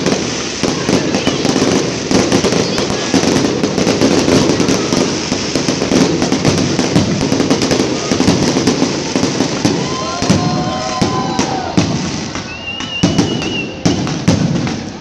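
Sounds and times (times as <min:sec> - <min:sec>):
fireworks bangs: 0:00.0 - 0:15.0
fireworks crackling and popping: 0:00.0 - 0:15.0
faint wavering whistles: 0:12.4 - 0:14.0
high thin whistle: 0:12.4 - 0:14.1.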